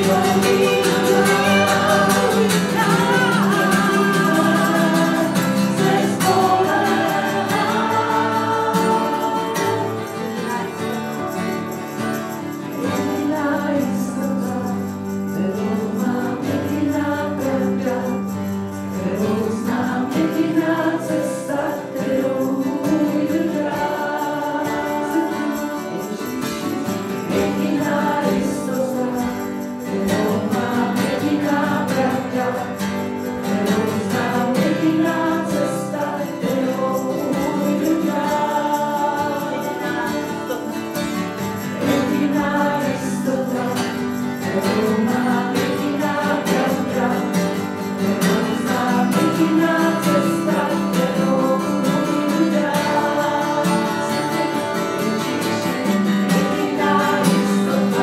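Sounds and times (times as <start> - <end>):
women singing together: 0.0 - 11.1, 12.8 - 58.0
strummed acoustic guitar: 0.0 - 58.0
tambourine jingling: 0.0 - 58.0.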